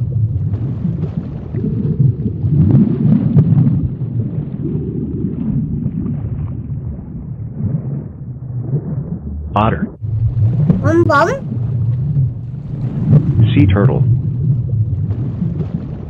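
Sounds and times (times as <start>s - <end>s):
deep underwater rumble: 14.1s - 16.0s.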